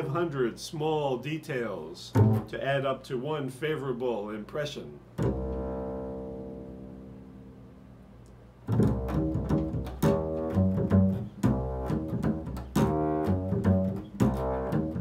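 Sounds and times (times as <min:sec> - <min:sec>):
double bass plucked notes: 0:02.1 - 0:02.9, 0:05.2 - 0:15.0.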